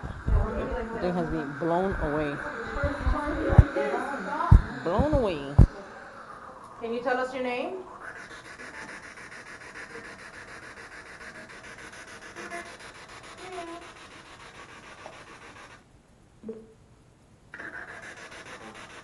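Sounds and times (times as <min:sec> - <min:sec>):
snatches of broadcast sound: 0:00.0 - 0:05.8
choppy radio static hiss: 0:00.0 - 0:14.0.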